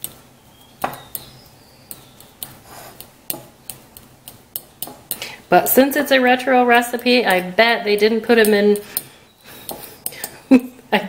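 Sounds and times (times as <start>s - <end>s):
fork clicking and scraping in bowl: 0.8s - 5.5s, 8.0s - 10.5s.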